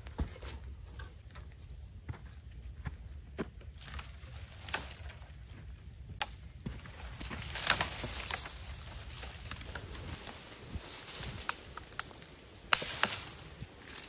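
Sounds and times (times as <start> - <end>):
leaves rustling: 3.7 - 14.0
branch snapping: 3.8 - 5.2, 7.1 - 14.0
twigs cracking: 3.8 - 5.4, 6.1 - 14.0.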